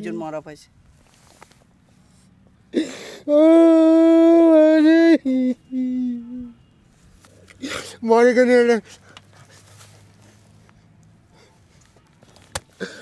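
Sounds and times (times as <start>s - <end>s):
man sobbing: 2.7s - 6.6s
man wailing: 3.2s - 6.6s.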